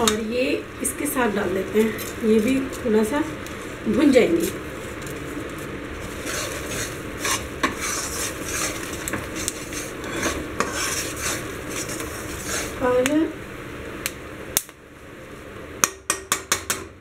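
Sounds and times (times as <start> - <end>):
faint sizzling: 0.0 - 15.6
spoon scraping a pan: 6.0 - 13.0.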